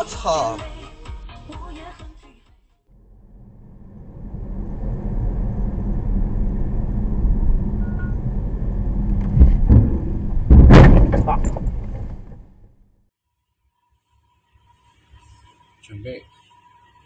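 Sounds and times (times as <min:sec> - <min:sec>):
car engine and road noise: 0:02.9 - 0:13.0
loud bang: 0:09.0 - 0:12.8
sharp thumps: 0:09.0 - 0:12.9.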